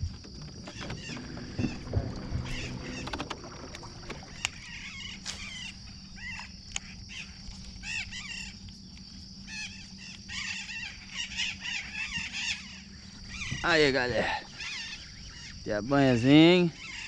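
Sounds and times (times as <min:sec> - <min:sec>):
electric motor hum: 0:00.0 - 0:06.4
birds calling: 0:00.0 - 0:17.0
high insect drone: 0:00.0 - 0:17.0.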